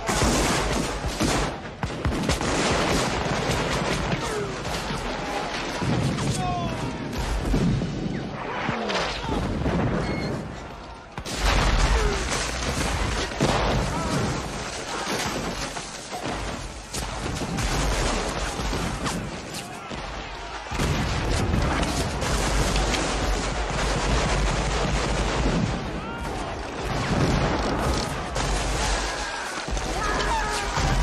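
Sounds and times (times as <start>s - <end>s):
rifle gunfire: 20.7s - 25.9s
deep explosion booms: 20.7s - 29.0s.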